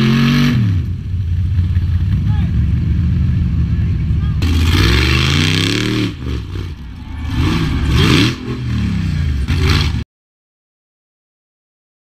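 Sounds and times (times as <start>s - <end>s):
buggy engine revving hard: 0.0s - 1.1s, 4.4s - 10.0s.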